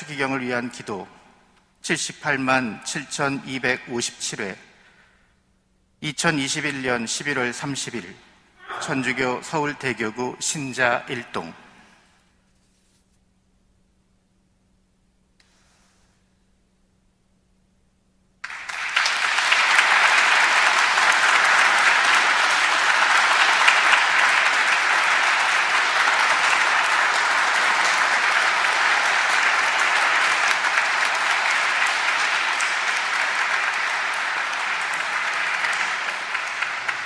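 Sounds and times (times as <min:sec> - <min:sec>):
crowd applauding: 0:08.8 - 0:10.1, 0:18.4 - 0:37.0.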